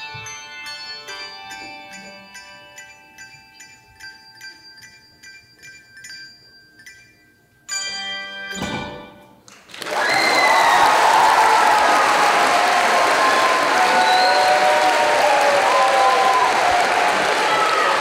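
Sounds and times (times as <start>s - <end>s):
handbells ringing: 0.0s - 9.2s
audience applause: 9.6s - 18.0s.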